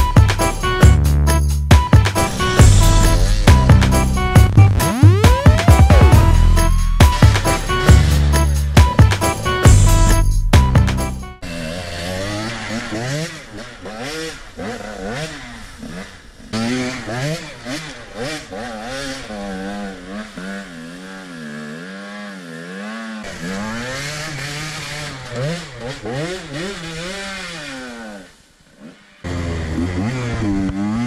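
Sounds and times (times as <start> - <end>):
dirt bike engine revving: 0.0 - 31.0
rear wheel spinning in dirt: 11.4 - 31.0.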